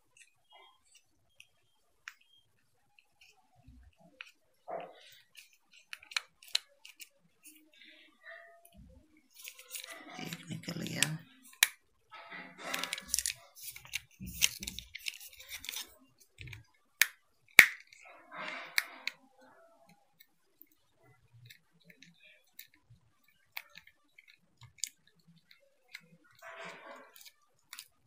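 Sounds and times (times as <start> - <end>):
screwdriver scraping plastic: 3.0 - 7.8, 8.7 - 11.8, 12.4 - 19.2, 21.4 - 28.0.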